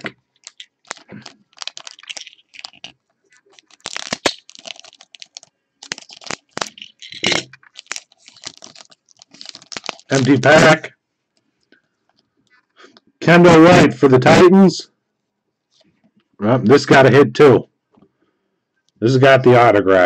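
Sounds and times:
foil wrapper tearing and crinkling: 0.0s - 10.5s.

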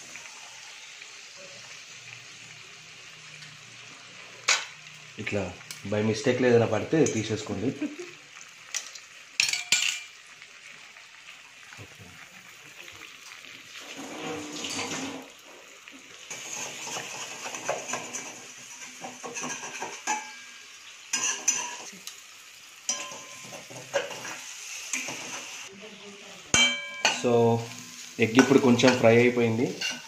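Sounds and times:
eggs sizzling in oil: 0.0s - 30.0s
metal spoon scraping pan: 13.8s - 15.3s, 16.3s - 21.9s, 22.9s - 25.6s, 26.6s - 30.0s.

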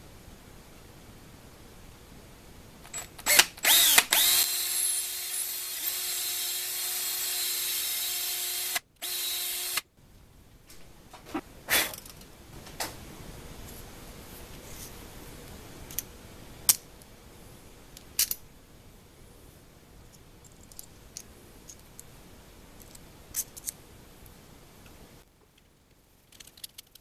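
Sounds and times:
small metal parts clicking: 18.2s - 18.4s, 20.1s - 22.1s, 26.2s - 27.0s.

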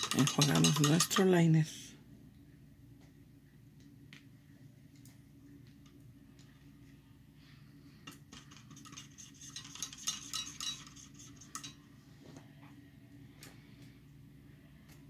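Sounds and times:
brush handle clinking on container: 0.0s - 1.4s.

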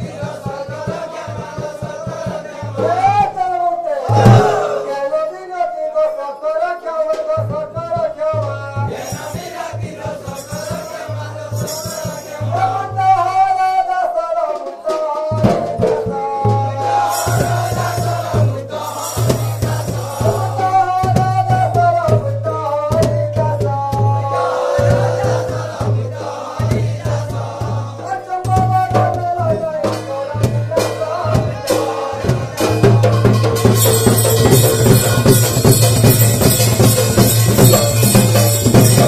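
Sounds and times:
drum beat: 0.0s - 5.3s, 15.2s - 39.0s
wavering melody line: 4.1s - 5.3s, 24.2s - 26.5s
jingling percussion: 4.1s - 5.4s, 8.4s - 13.1s, 15.4s - 39.0s.

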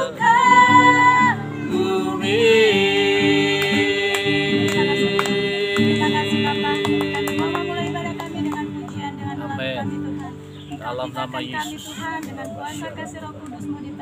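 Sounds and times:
women singing: 0.0s - 10.4s.

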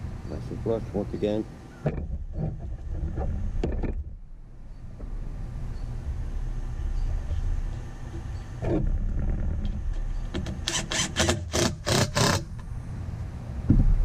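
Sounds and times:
low rumble: 2.0s - 10.7s, 12.5s - 14.0s
cordless drill driving screws: 10.4s - 12.5s.

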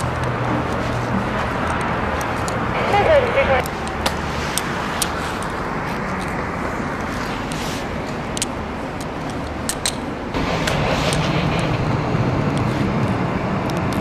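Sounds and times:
distant jet engines rushing: 0.0s - 14.0s
taxiing airliner engine hum: 0.0s - 14.0s
sharp clicks: 8.3s - 11.8s.

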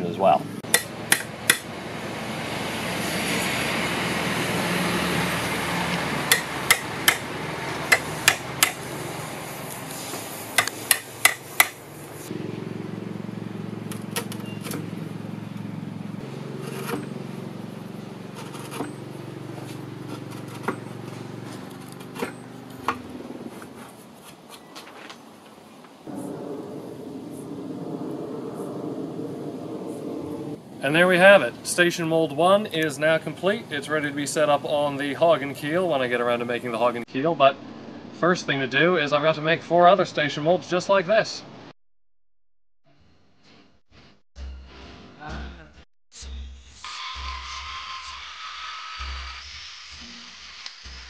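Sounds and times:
hammer striking chisel: 0.6s - 1.7s, 6.3s - 7.3s, 7.9s - 8.8s, 10.6s - 11.8s
chisel paring ticks: 10.6s - 11.8s.

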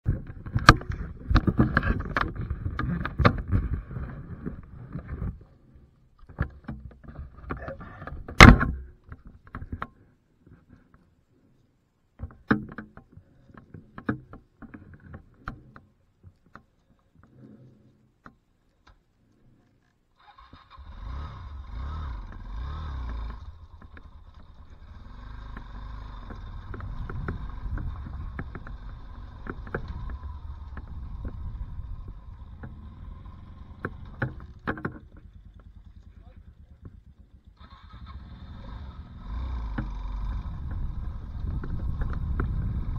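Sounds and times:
tyres on loose gravel: 20.2s - 42.9s
dirt bike engine revving: 20.6s - 42.9s
knocks and clicks: 25.5s - 31.6s.

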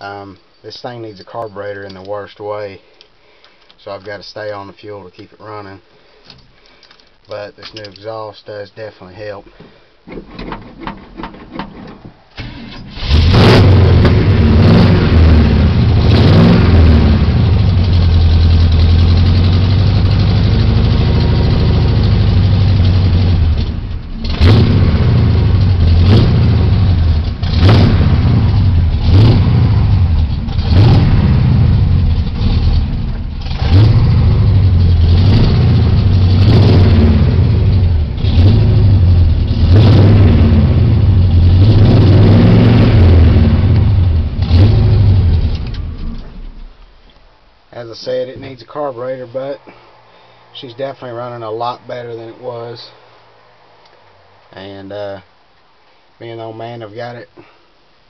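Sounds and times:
truck engine revving: 13.0s - 45.9s.

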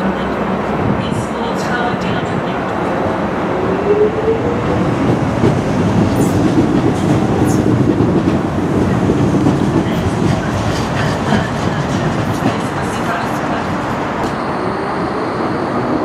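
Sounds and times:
rail running noise: 0.0s - 16.0s.

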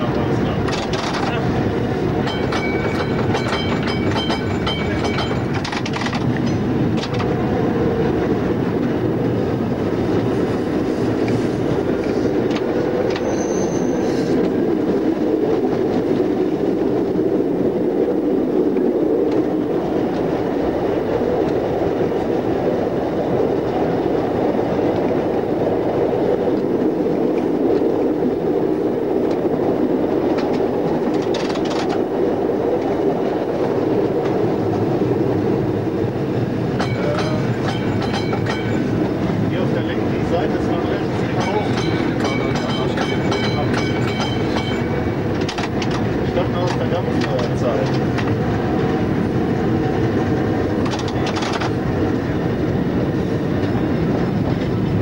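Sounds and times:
tram running gear rumble: 0.0s - 55.0s
wheels clicking over rail joints: 0.1s - 7.5s, 11.2s - 13.6s, 30.2s - 32.2s, 35.6s - 55.0s.

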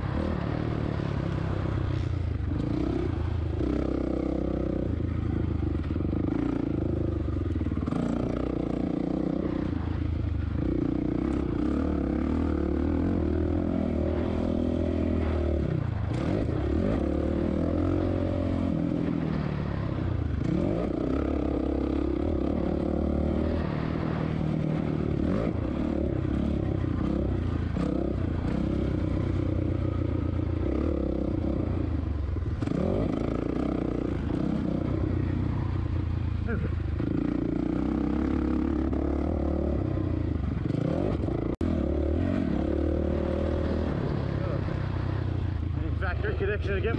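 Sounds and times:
motocross engine revving: 10.6s - 35.7s, 36.4s - 46.9s.

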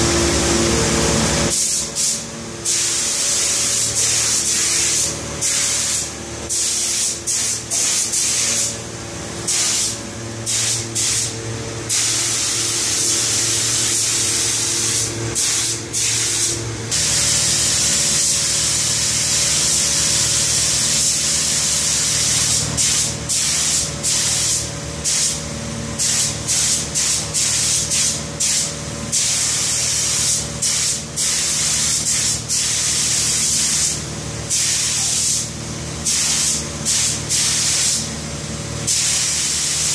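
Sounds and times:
low machine hum: 0.0s - 1.5s, 7.2s - 23.3s
paint spray gun hissing: 1.2s - 25.4s, 26.0s - 38.1s, 38.8s - 39.9s.

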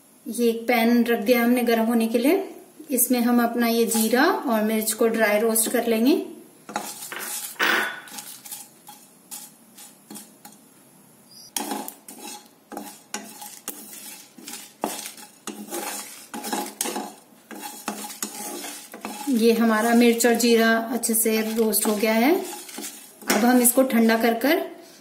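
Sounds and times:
wooden spatula scraping pan: 3.8s - 4.3s, 6.7s - 10.6s, 11.4s - 24.2s.

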